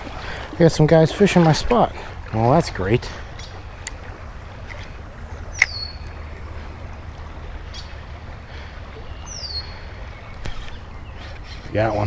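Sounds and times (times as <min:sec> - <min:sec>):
creek water flowing: 0:00.0 - 0:12.0
bird whistling: 0:05.5 - 0:06.0, 0:09.2 - 0:09.8.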